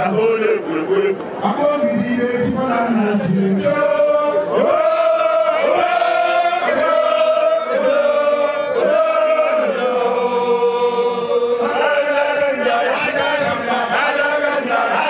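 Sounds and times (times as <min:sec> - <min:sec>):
voices chanting: 0:03.3 - 0:15.0.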